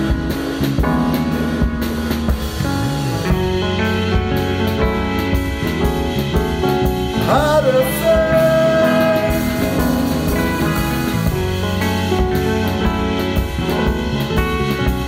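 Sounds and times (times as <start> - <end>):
band playing bass and keyboard: 0.0 - 15.0
man singing: 7.2 - 10.7.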